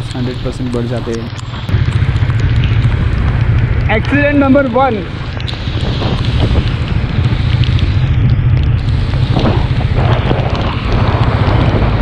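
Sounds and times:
motorcycle engine running: 0.0s - 12.0s
wind buffeting microphone: 0.0s - 12.0s
tyres hissing on wet road: 2.8s - 8.2s, 8.8s - 12.0s.

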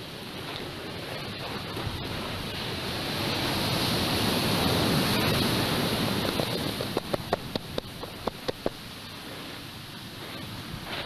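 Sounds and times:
ocean surf rushing: 0.0s - 11.0s
sharp pops: 6.2s - 8.8s.

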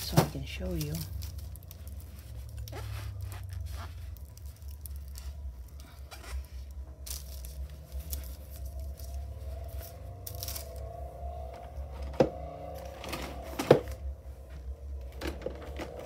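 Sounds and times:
low steady hum: 0.0s - 16.0s
cloth rubbing and wiping: 2.0s - 4.2s.

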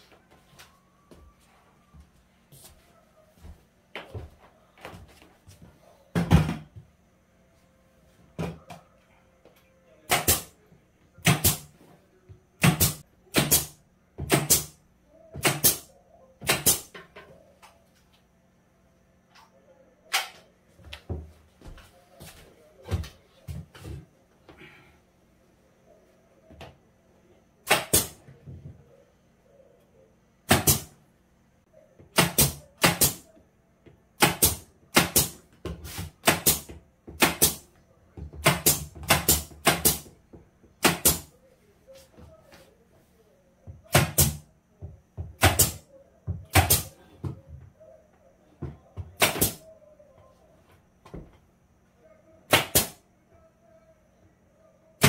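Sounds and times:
faint low hum: 0.0s - 55.0s
pneumatic nail gun firing: 10.1s - 10.5s, 11.2s - 11.7s, 12.6s - 14.8s, 15.4s - 16.9s, 27.6s - 28.2s, 30.5s - 30.9s, 32.2s - 33.2s, 34.2s - 35.4s, 36.2s - 37.6s, 38.4s - 40.0s, 40.8s - 41.3s, 43.9s - 44.4s, 45.4s - 45.8s, 46.5s - 46.9s, 49.2s - 49.6s, 52.5s - 53.0s.

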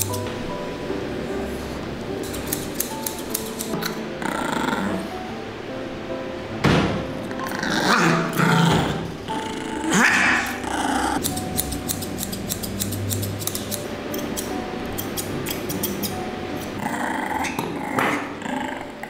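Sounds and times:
scissors snipping: 2.2s - 4.0s, 10.3s - 10.6s, 11.2s - 16.8s
puppy growling and whining: 3.9s - 5.1s, 7.3s - 11.2s, 16.7s - 19.0s.

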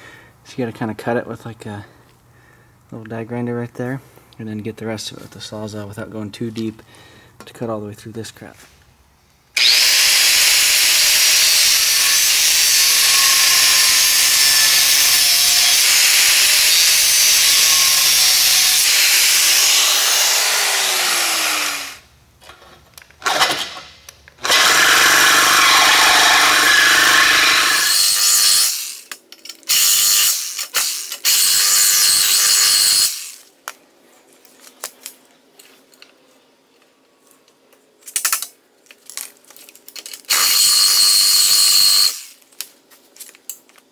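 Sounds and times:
grinder cutting with whine: 9.6s - 22.1s, 24.4s - 29.1s, 29.7s - 33.4s, 40.3s - 42.4s
reciprocating saw cutting: 9.6s - 22.1s, 24.4s - 29.1s, 40.3s - 42.4s.

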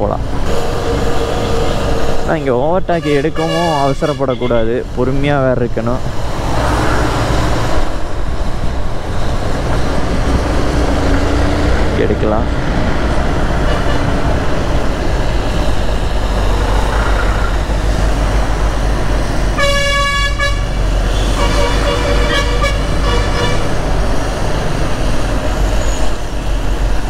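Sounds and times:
wind and road noise: 0.0s - 27.0s
vehicle horn honking: 3.0s - 4.6s, 19.6s - 23.7s.

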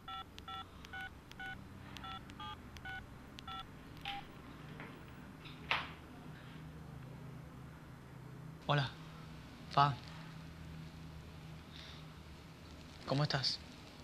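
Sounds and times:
touch-tone keypad beeps: 0.0s - 4.3s.

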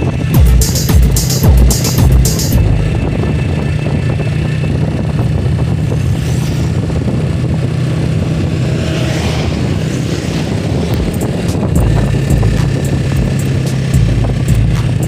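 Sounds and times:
steady low hum: 0.0s - 10.1s, 10.9s - 15.0s
motorcycles passing: 0.0s - 15.0s
car passing: 2.6s - 14.1s.

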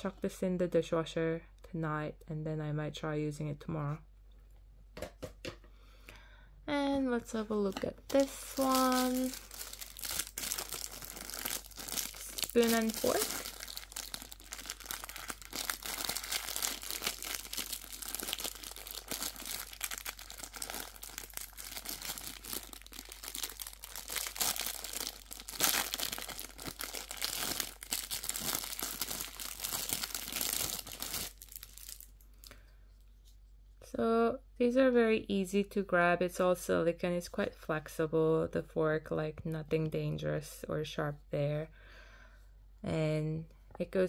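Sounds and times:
plastic packaging crinkling: 7.6s - 32.6s.

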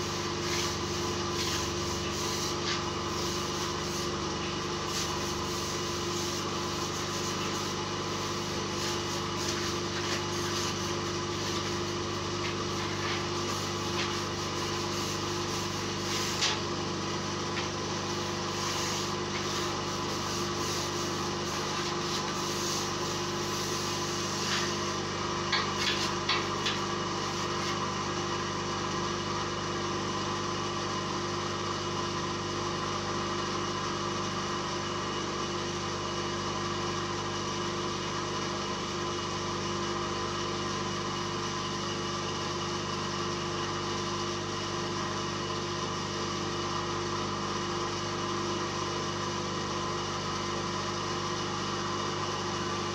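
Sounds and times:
cloth rubbing on steel: 0.0s - 16.7s, 17.8s - 25.1s, 25.7s - 27.9s
machinery motor hum: 0.0s - 28.4s
short taps and scrapes: 25.5s - 26.9s.

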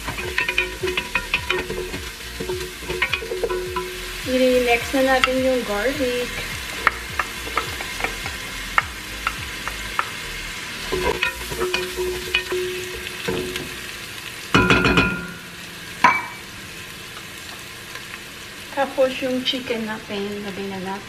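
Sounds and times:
wooden spoon scraping pot: 0.0s - 4.2s
onions sizzling in oil: 0.0s - 21.0s.

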